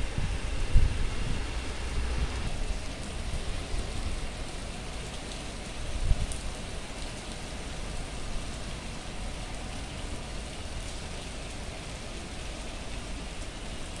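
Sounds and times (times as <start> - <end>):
rain falling on wet street: 0.0 - 14.0.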